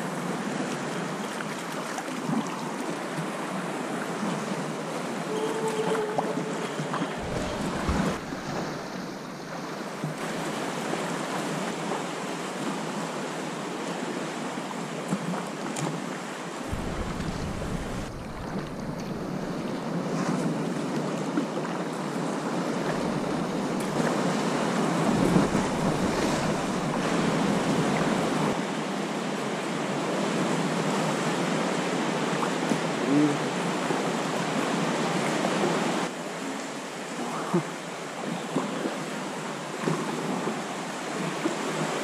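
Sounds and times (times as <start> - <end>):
water lapping against rock: 5.4 - 10.6, 16.7 - 21.0, 22.2 - 28.6
wind buffeting microphone: 7.0 - 10.1, 16.7 - 20.3, 22.8 - 28.6.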